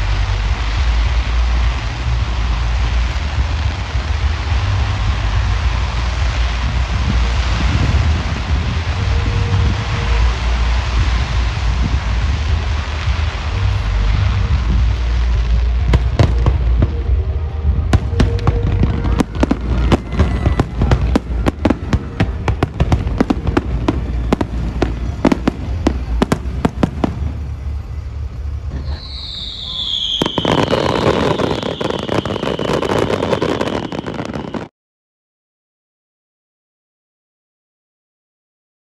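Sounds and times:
wind rumble on microphone: 0.0 - 29.1
dense crackling hiss: 0.0 - 34.7
falling firework whistle: 0.0 - 34.7
fireworks cracking and banging: 0.0 - 34.7.

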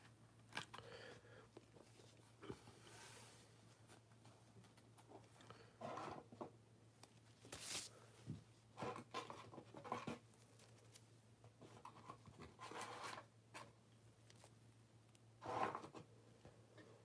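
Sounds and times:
handling rustles and scrapes: 1.6 - 6.4, 7.0 - 14.6.

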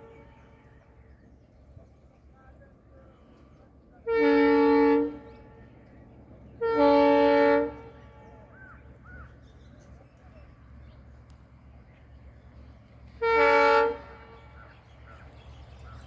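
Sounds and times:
locomotive horn blasts: 0.0 - 1.0, 4.0 - 5.7, 6.6 - 8.3, 13.1 - 14.6
train rumbling: 0.0 - 16.0.

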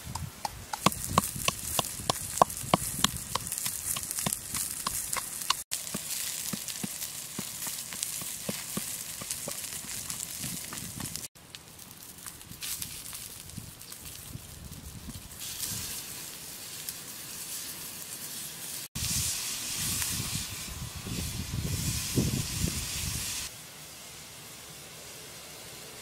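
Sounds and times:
flames rumbling: 0.6 - 17.0
meat sizzling on a griddle: 0.9 - 11.3, 12.2 - 24.0.

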